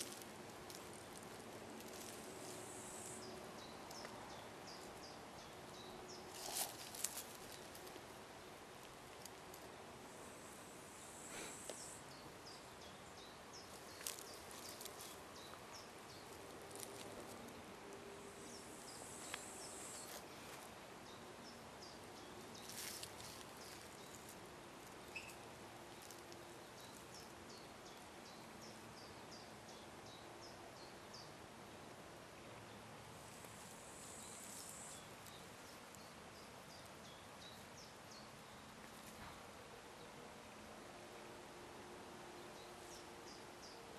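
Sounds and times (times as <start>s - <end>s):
handling clicks and rustles: 0.0s - 2.7s, 16.2s - 17.6s.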